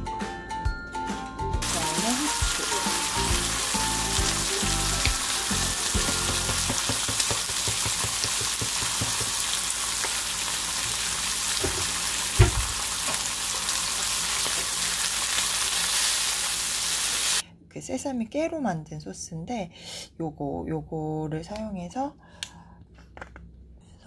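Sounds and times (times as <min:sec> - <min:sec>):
bacon sizzling in a frying pan: 0:01.6 - 0:17.4.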